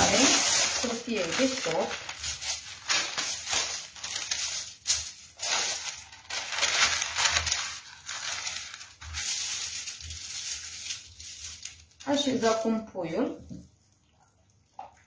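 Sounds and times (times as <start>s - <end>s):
baking paper rustling and crinkling: 0.0s - 13.2s.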